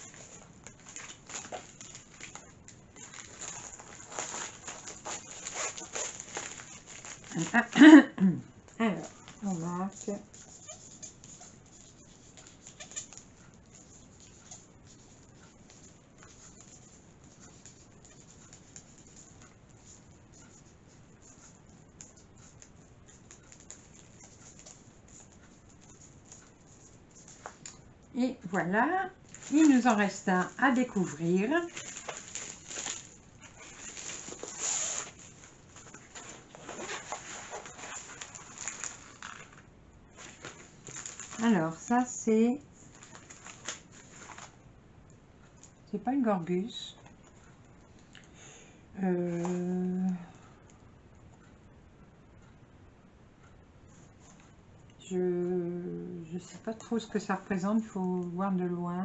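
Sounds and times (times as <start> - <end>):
plastic packaging rustling: 0.0 - 8.0, 29.2 - 44.6
faint plastic rustling: 0.0 - 51.6, 53.4 - 55.1, 56.4 - 59.0
marker pen scratching: 9.2 - 27.6.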